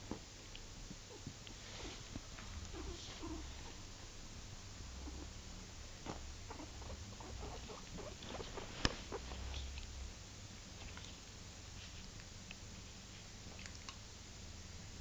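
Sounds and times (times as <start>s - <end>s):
small pets rustling on bedding: 1.5s - 4.1s, 6.0s - 9.8s, 10.8s - 12.2s
pets sniffing: 1.6s - 3.8s, 6.1s - 9.8s.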